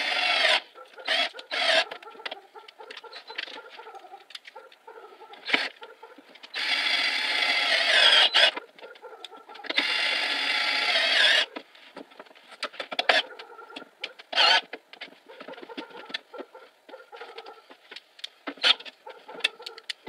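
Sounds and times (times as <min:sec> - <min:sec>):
cordless drill driving screws: 0:09.7 - 0:11.5.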